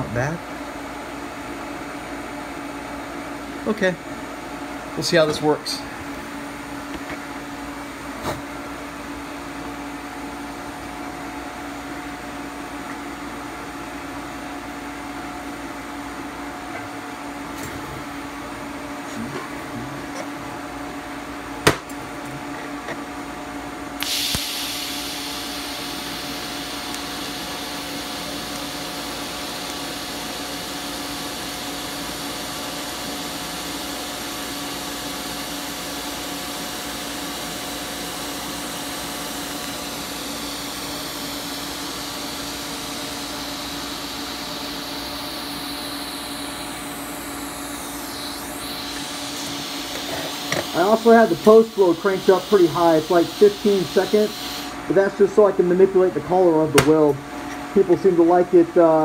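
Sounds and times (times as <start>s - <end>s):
shielding gas hissing: 24.0s - 32.4s, 33.3s - 55.0s
welding arc hissing: 24.0s - 55.0s.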